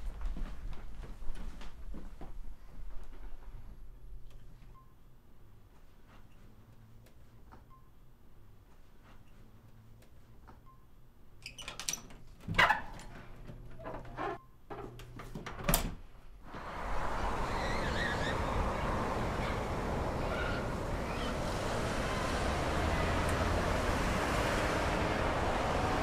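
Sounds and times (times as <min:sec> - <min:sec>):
deadbolts clicking and clunking: 0:11.5 - 0:16.0
street traffic: 0:16.4 - 0:26.0
wind: 0:16.4 - 0:26.0.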